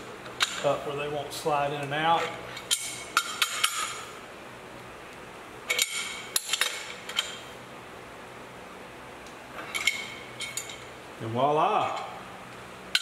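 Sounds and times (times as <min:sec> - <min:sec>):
wrench clinking on metal bolts: 0:05.7 - 0:07.4.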